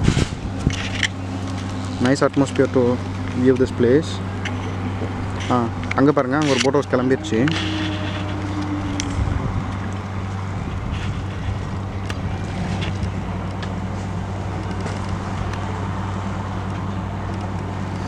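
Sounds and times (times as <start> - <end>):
wind on microphone: 0.0 - 2.0, 4.3 - 13.4
boat diesel engine humming: 0.0 - 18.0.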